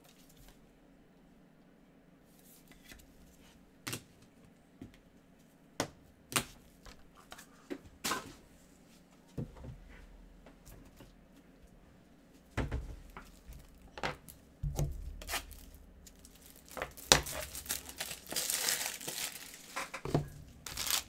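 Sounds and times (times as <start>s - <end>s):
foil wrapper crinkling: 15.2s - 21.0s.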